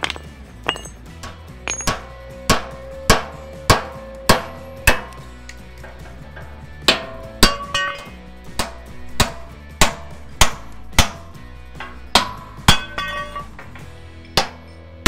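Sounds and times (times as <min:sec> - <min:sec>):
background music: 0:00.0 - 0:15.0
hammer on metal: 0:01.7 - 0:05.2, 0:06.9 - 0:13.5.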